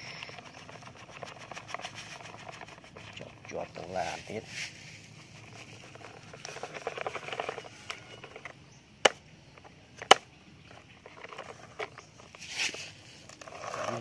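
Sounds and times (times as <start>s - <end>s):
plastic clacks: 5.4s - 14.0s.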